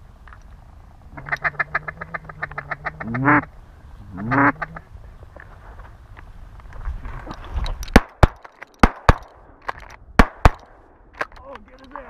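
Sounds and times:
duck call quacking: 0:01.2 - 0:03.5, 0:04.1 - 0:04.9.

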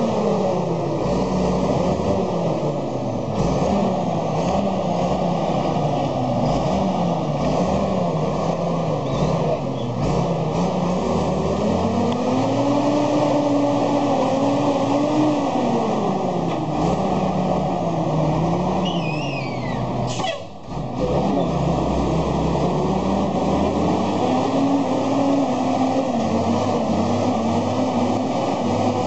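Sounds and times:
truck engine working hard: 0:00.0 - 0:29.0
short falling whistle: 0:18.8 - 0:20.3.

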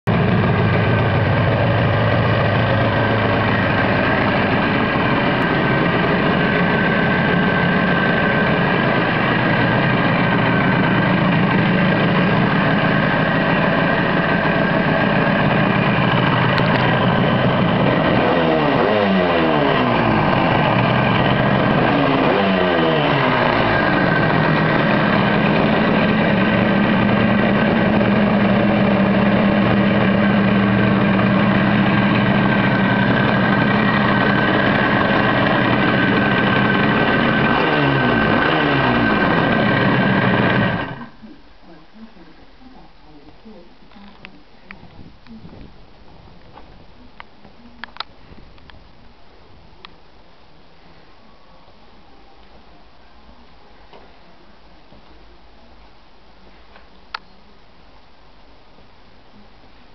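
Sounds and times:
two-stroke engine idling and revving: 0:00.0 - 0:41.1.

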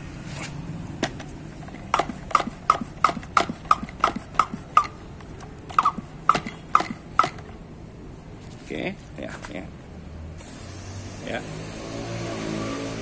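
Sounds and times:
hand pump squeaky clicks: 0:01.0 - 0:07.6.

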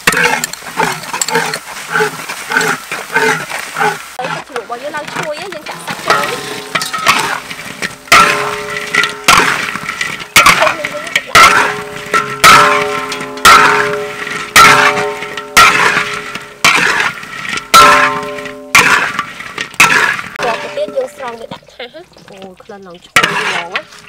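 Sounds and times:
spatula clanging on a wok: 0:05.1 - 0:21.5, 0:23.2 - 0:23.9.

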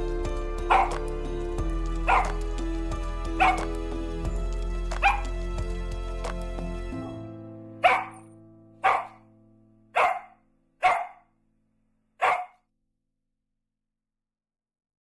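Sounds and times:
background music: 0:00.0 - 0:11.2
dog barking: 0:00.7 - 0:01.0, 0:02.1 - 0:02.4, 0:03.4 - 0:03.7, 0:05.0 - 0:05.3, 0:07.8 - 0:09.2, 0:10.0 - 0:11.3, 0:12.2 - 0:12.6.

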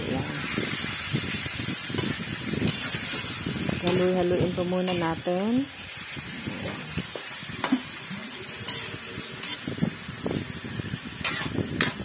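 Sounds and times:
frying sizzle: 0:00.0 - 0:12.0
metal spatula scraping a wok: 0:01.9 - 0:05.3, 0:07.6 - 0:10.2, 0:11.1 - 0:12.0.

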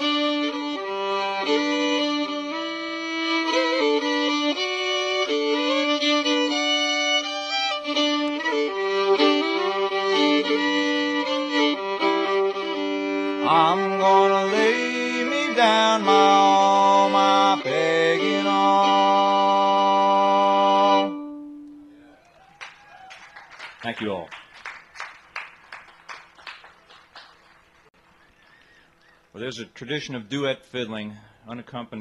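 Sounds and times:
string band with fiddles: 0:00.0 - 0:22.0.

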